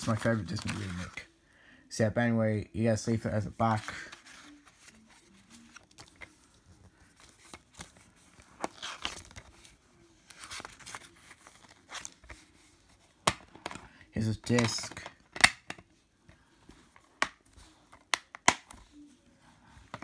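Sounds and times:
paper rustling: 0.0s - 1.2s, 3.6s - 13.8s.

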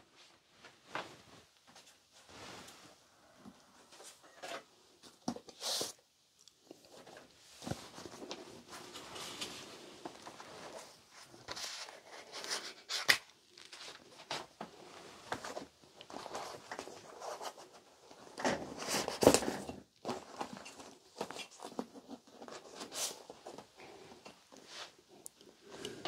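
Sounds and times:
rustling and shuffling papers: 6.7s - 26.0s.

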